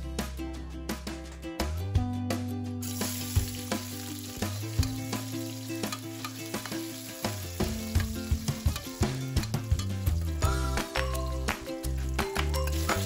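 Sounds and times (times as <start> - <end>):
onion and garlic sizzling in oil: 2.8 - 13.0.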